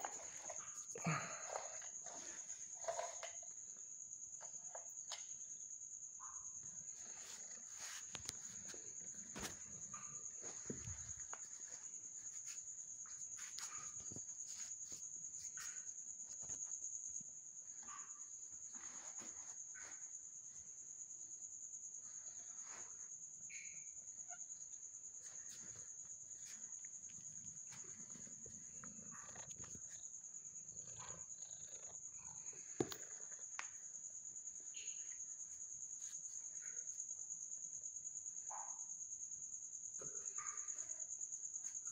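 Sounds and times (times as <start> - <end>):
crickets trilling: 0.0 - 41.9.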